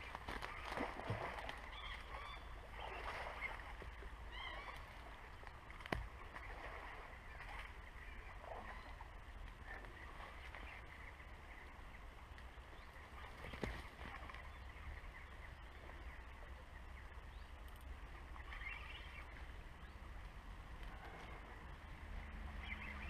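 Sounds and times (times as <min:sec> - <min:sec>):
steady low rumble: 0:00.0 - 0:23.0
faint bird chirps: 0:12.7 - 0:20.1.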